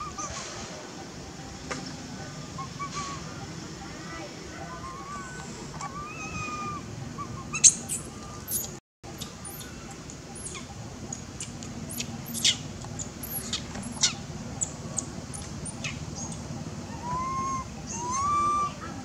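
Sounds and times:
high-pitched animal chirps and squeaks: 4.7s - 9.8s, 11.4s - 14.7s, 15.3s - 18.8s.

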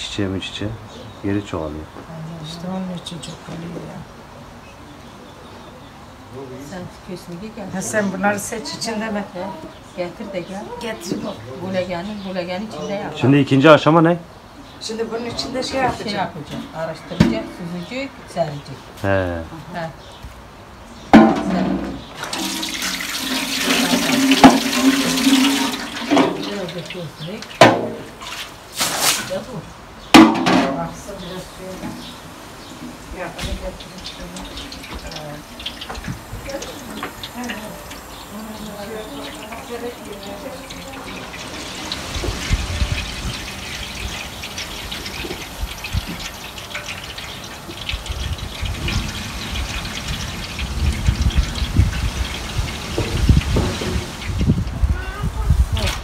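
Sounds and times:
water pouring into basin: 22.2s - 26.8s, 38.9s - 54.5s.

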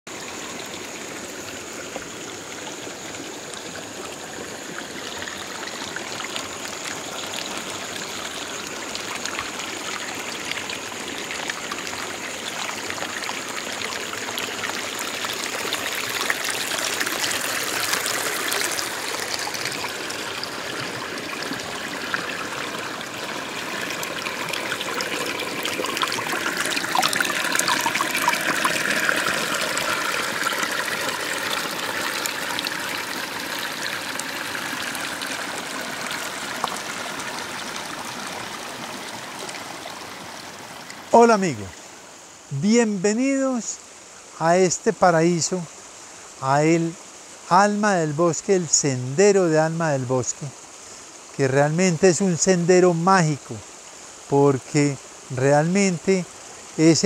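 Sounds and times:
stream trickling over rocks: 0.1s - 57.0s.

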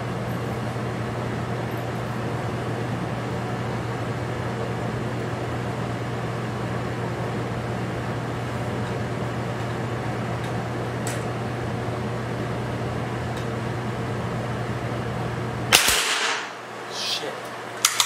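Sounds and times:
steady mechanical hum: 0.0s - 18.0s
sharp loud crack with hiss: 15.7s - 16.5s.

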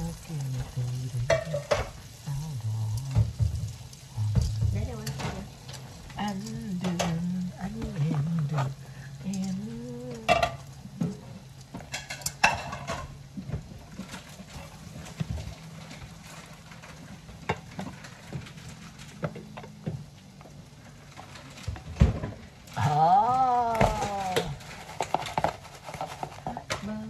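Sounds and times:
cutlets sizzling in oil: 0.0s - 19.3s.

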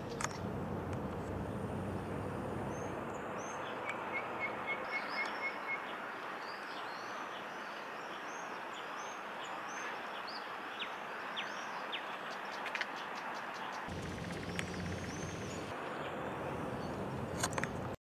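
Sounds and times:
small birds chirping: 2.6s - 17.4s.

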